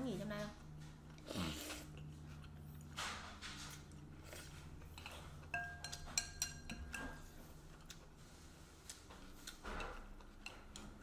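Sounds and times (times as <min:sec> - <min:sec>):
low steady hum: 0:00.0 - 0:11.0
ceramic spoon clinking bowl: 0:05.0 - 0:07.4.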